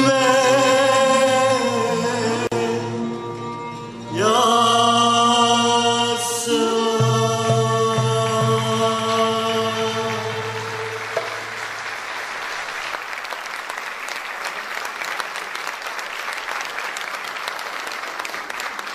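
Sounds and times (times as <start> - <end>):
choir singing held note: 4.1 - 12.4
audience applauding: 10.1 - 18.9.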